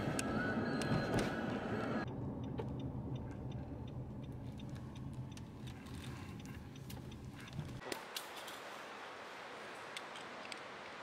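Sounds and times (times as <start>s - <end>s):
low engine hum: 0.0s - 7.8s
car road noise: 0.0s - 7.9s
turn signal clicking: 2.0s - 7.8s.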